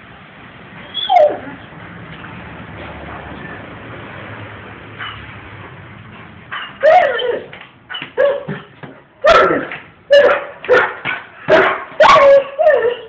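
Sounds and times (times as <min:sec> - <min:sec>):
dog yelping barks and whines: 0:00.8 - 0:01.6, 0:06.5 - 0:13.0.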